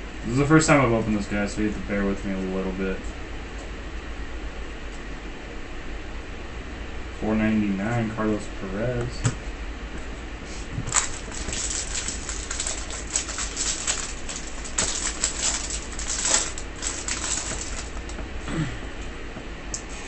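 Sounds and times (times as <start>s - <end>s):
foil wrapper crinkling and ripping: 10.9s - 18.2s.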